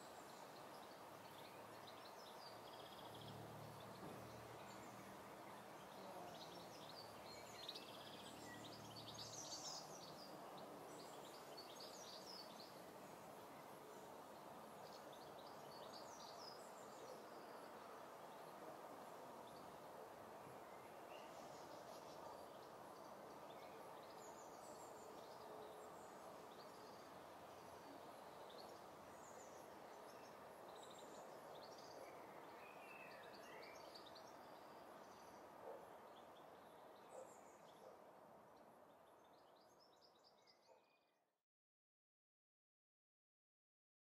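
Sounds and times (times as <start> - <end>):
small birds chirping: 0.0 - 13.7
faint steady hiss: 0.0 - 40.5.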